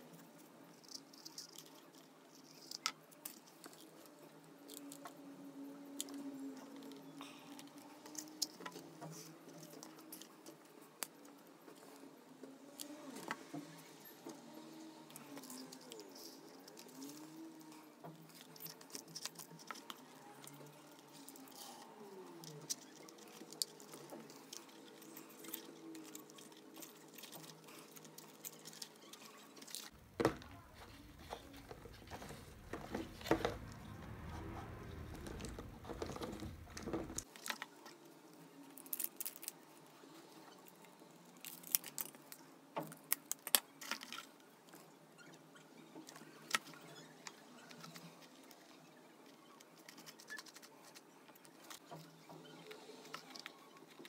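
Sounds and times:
dull low handling noise: 0:29.9 - 0:37.3.

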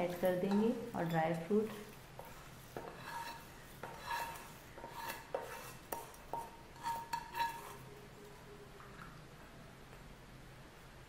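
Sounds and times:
metal spoon clinking on pan: 0:00.0 - 0:01.8, 0:02.8 - 0:07.8.

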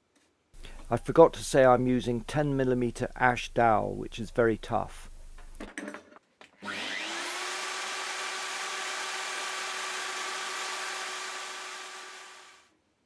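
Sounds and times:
router motor whine: 0:06.6 - 0:12.6.

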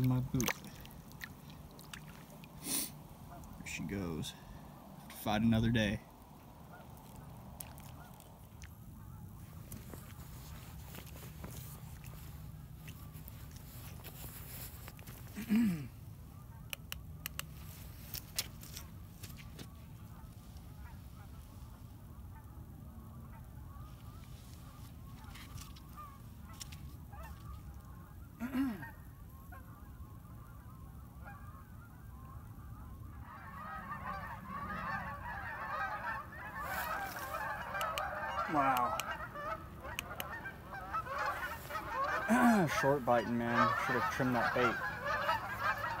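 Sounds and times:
geese honking in flight: 0:06.4 - 0:08.2, 0:20.0 - 0:46.0.

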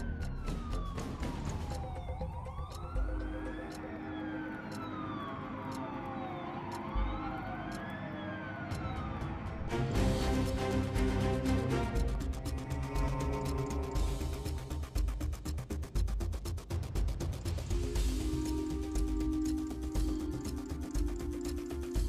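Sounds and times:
emergency siren wailing: 0:00.0 - 0:15.0.

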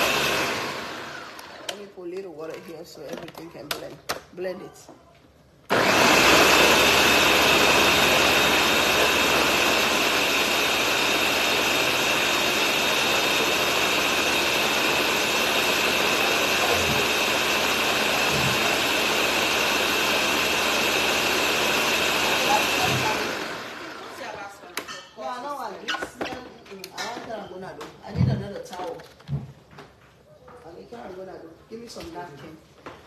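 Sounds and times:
blender motor running: 0:00.0 - 0:01.9, 0:05.7 - 0:24.5.

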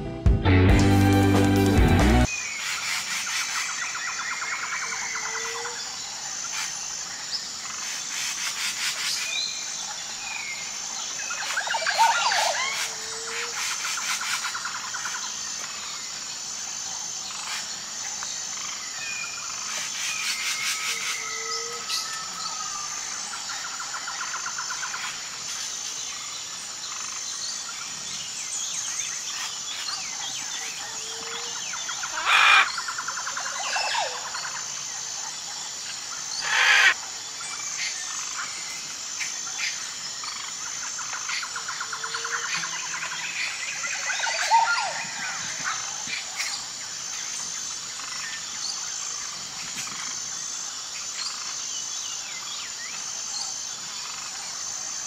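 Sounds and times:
frogs chirping: 0:02.2 - 0:55.0
pulsing high insect drone: 0:02.2 - 0:55.0
loud bird squawks: 0:32.0 - 0:32.8, 0:36.4 - 0:37.0
birds chirping: 0:35.9 - 0:46.7.

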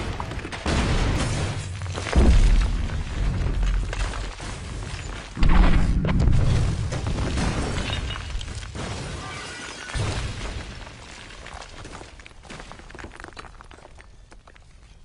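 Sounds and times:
glass shattering and debris: 0:00.0 - 0:05.4, 0:06.2 - 0:13.5
explosion blast with deep rumble: 0:00.6 - 0:04.6, 0:05.4 - 0:08.1.

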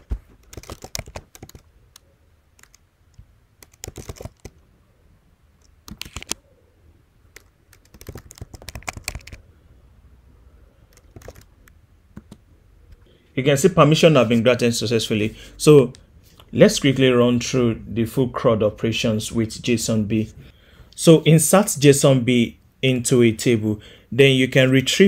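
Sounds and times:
computer keyboard typing: 0:00.0 - 0:02.8, 0:03.6 - 0:04.6, 0:05.6 - 0:06.4, 0:07.3 - 0:09.4, 0:10.9 - 0:12.4.

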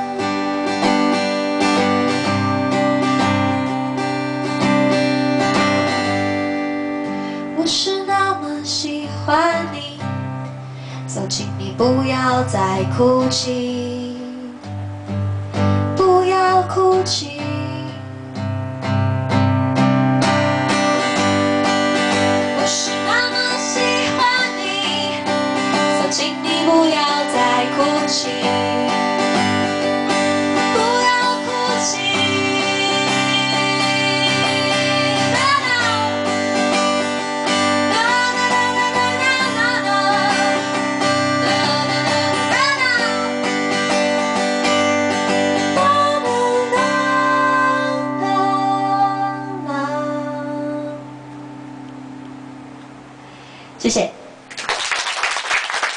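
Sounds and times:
acoustic guitar strumming: 0:00.0 - 0:53.7
woman singing: 0:07.5 - 0:10.2, 0:11.1 - 0:14.8, 0:15.8 - 0:18.2, 0:22.0 - 0:51.2.

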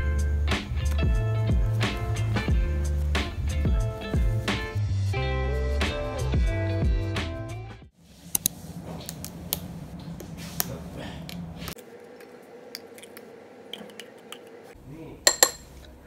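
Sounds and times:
spoon clicking on glass bowl: 0:15.3 - 0:15.7
spoon tapping: 0:15.3 - 0:15.8.

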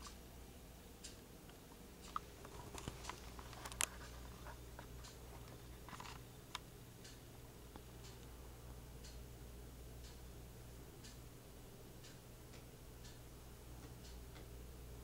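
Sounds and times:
low electrical hum: 0:00.0 - 0:15.0
small clicks and taps: 0:01.0 - 0:08.3.

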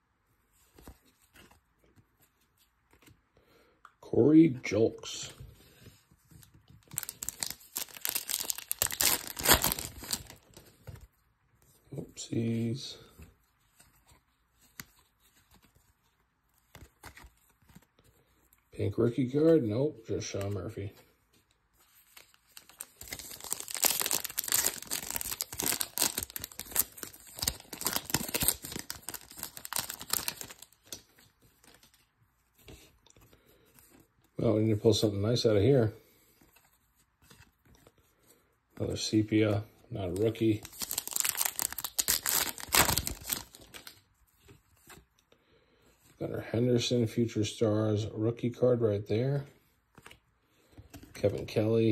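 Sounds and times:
foil wrapper tearing and crinkling: 0:06.8 - 0:10.6, 0:22.6 - 0:31.0, 0:40.3 - 0:44.0
foil crackling: 0:06.9 - 0:10.6, 0:22.6 - 0:31.0, 0:40.5 - 0:43.9.

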